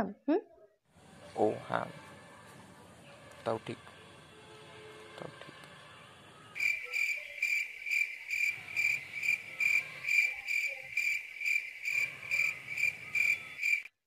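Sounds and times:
cricket chirping: 6.6s - 13.9s.

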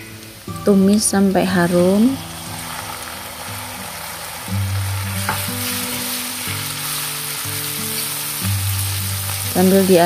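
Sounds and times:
food sizzling in hot oil: 0.0s - 10.0s
soft background music: 0.0s - 10.0s.

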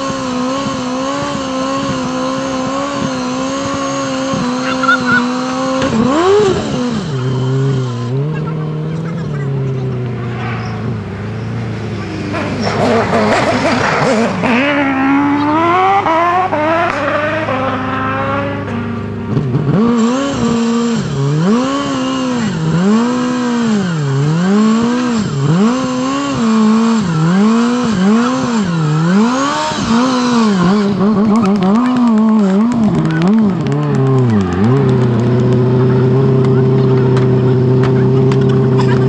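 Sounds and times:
car engine revving hard: 0.0s - 39.0s.

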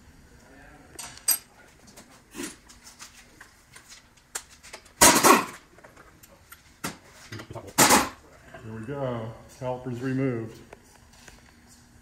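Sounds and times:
air impact wrench burst: 7.8s - 8.2s.

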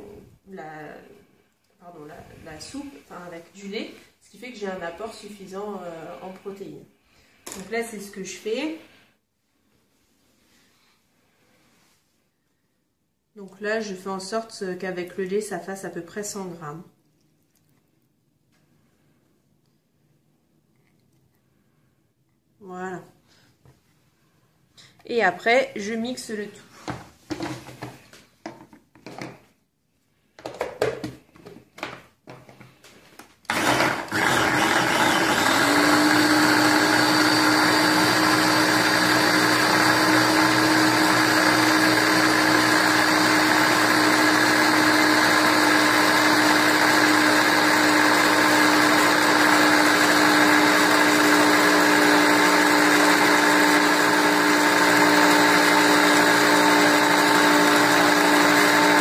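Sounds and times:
blender motor humming: 33.5s - 59.0s.

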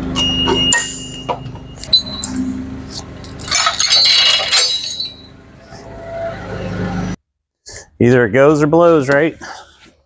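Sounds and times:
metal clinking and jangling: 3.3s - 5.3s.

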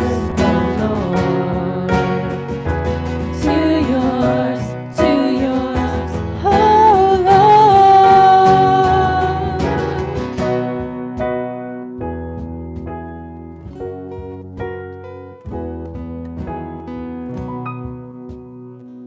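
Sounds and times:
person singing: 0.0s - 2.6s, 3.2s - 10.3s
drums: 0.0s - 14.8s
guitar: 0.0s - 19.0s
keyboard: 0.0s - 19.0s.

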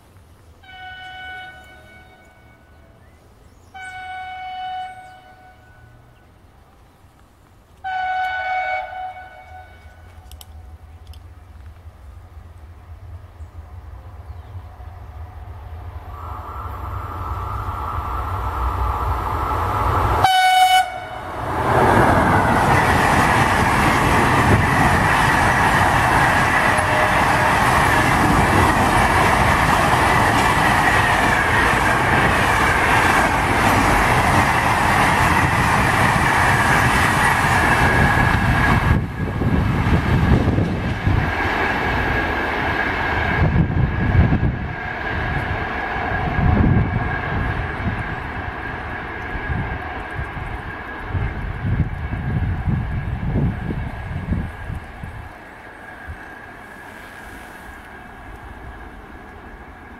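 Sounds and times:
freight train rumbling over rails: 0.0s - 59.9s
train horn blast: 0.6s - 3.0s, 3.7s - 6.1s, 7.8s - 10.3s, 20.2s - 22.7s, 26.3s - 28.0s.

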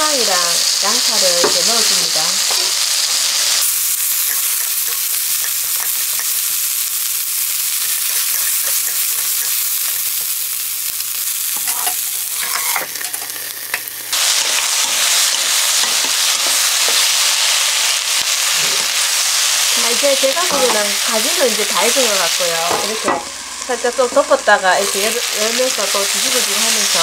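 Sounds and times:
vegetables sizzling in oil: 0.0s - 27.0s
wooden spatula tapping pan: 4.2s - 6.5s, 8.0s - 10.3s.

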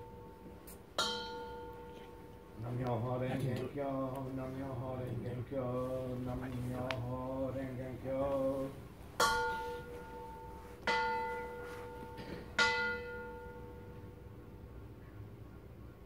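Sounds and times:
bowl bell struck with wooden striker: 1.0s - 1.8s.

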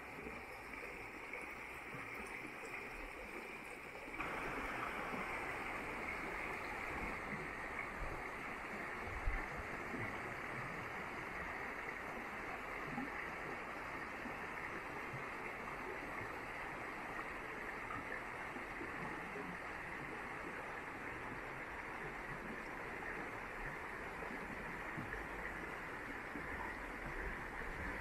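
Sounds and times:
river rushing over stones: 4.2s - 9.9s.

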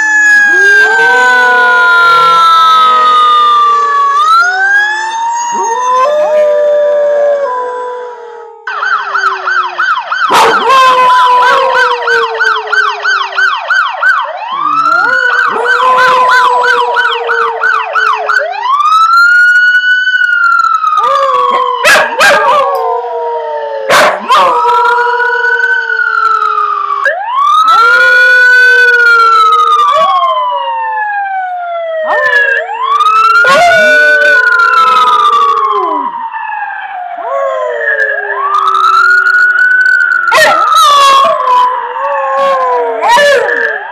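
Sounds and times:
emergency vehicle siren: 0.0s - 43.9s
dog howling: 0.4s - 9.4s, 10.3s - 13.5s, 14.6s - 18.5s, 21.0s - 26.5s, 32.1s - 32.6s, 33.2s - 36.1s, 40.3s - 43.9s.

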